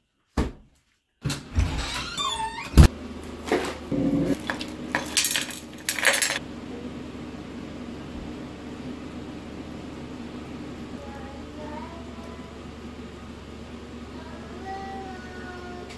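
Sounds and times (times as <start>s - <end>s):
steady low hum: 2.8s - 15.9s
dishes and cutlery clattering: 4.5s - 6.4s.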